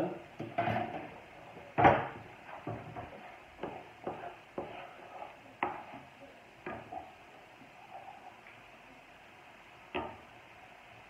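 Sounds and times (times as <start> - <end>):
spatula knocking against pan: 1.8 - 4.8, 5.6 - 6.9
spatula scraping pan: 2.3 - 8.4.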